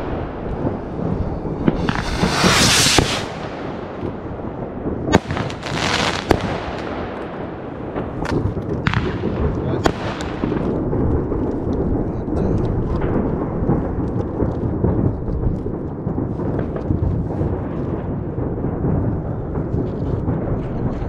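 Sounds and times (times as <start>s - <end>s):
fireworks rumbling bangs: 0.0s - 21.0s.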